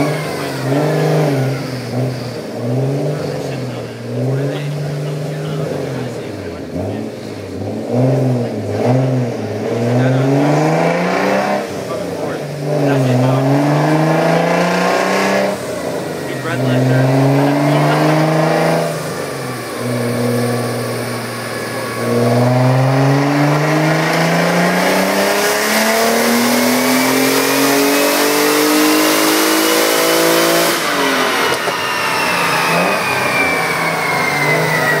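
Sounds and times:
car engine revving on dyno: 0.0s - 35.0s
high whine: 29.7s - 35.0s.

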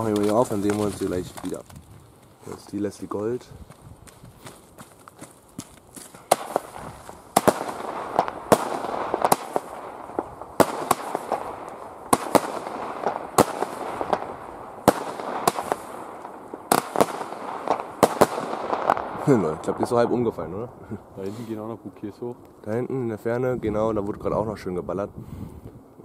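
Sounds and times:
firework bangs: 6.2s - 20.4s
crackle of bursting stars: 6.3s - 21.0s.

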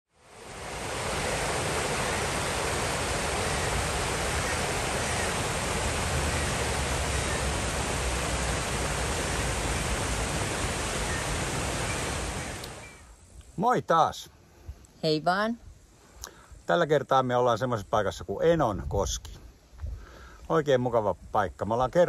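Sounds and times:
water rushing over rocks: 0.2s - 12.9s.

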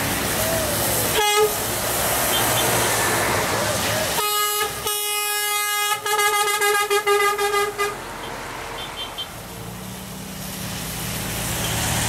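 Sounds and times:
tyre hiss on wet road: 0.0s - 12.0s
air horn blowing: 1.1s - 1.6s, 4.2s - 8.0s.

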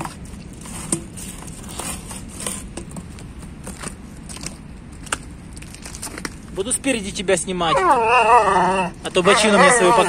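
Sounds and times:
dog gnawing rubber tyre: 7.7s - 10.0s.

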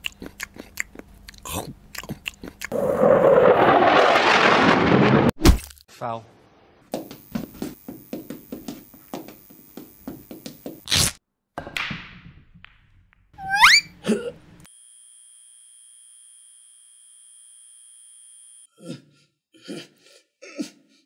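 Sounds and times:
loud crash: 2.8s - 5.6s.

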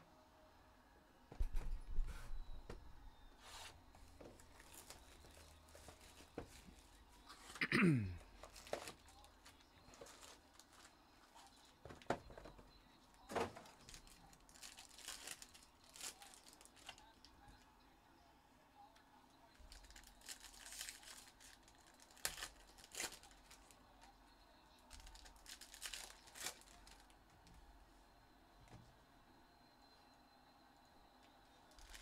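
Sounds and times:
plastic wrapper crinkling: 4.2s - 7.0s, 8.4s - 12.6s, 13.2s - 17.3s, 19.6s - 24.1s, 24.9s - 27.2s, 31.7s - 32.0s.

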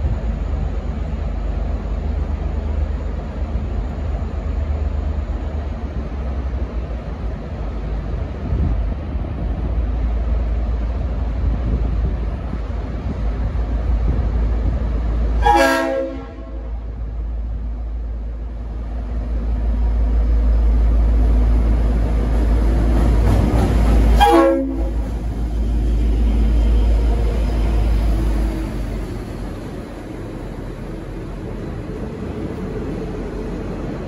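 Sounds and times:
diesel locomotive engine rumble: 0.0s - 34.0s
locomotive air horn blasts: 15.4s - 16.8s, 24.2s - 25.0s.

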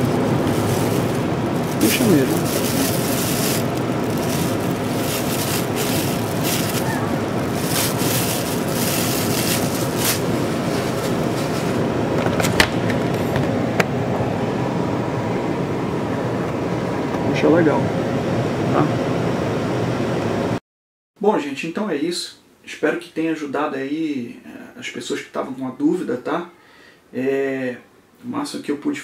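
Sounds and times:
plastic bag crinkling: 0.0s - 11.8s
air conditioner air rushing: 0.0s - 20.6s.

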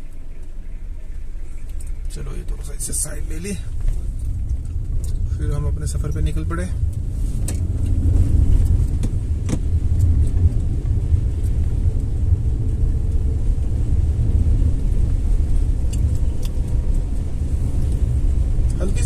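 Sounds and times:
vehicle engine and road noise: 0.0s - 19.0s.

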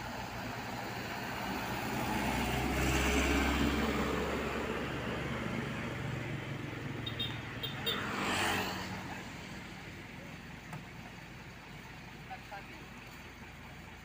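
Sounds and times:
small truck driving past: 0.0s - 10.2s
motorcycle driving past: 1.6s - 9.8s.

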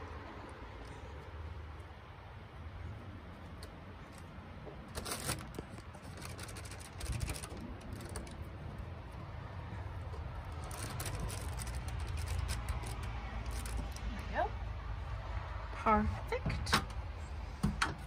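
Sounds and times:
paper rustling and crinkling: 4.1s - 8.8s, 10.1s - 14.2s.

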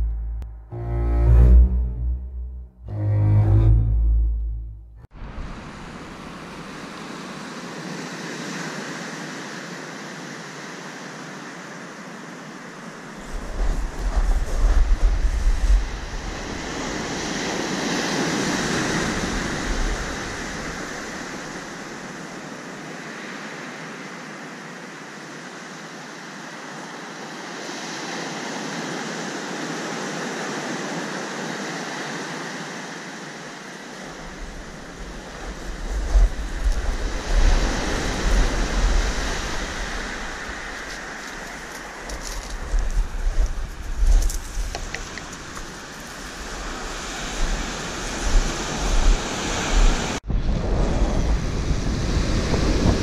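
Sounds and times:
wind buffeting microphone: 13.2s - 21.8s, 34.1s - 53.0s
wave washing over shingle: 33.7s - 50.2s.

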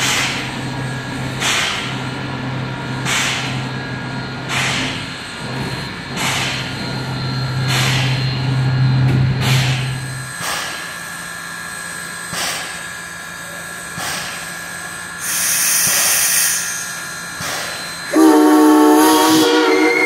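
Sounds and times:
steam hissing: 2.9s - 20.0s
chime steam whistle blast: 18.0s - 20.0s.

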